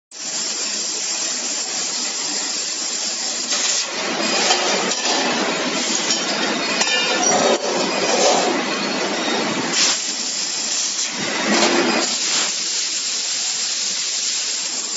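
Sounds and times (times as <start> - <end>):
metal pieces clinking on table: 4.2 - 8.5.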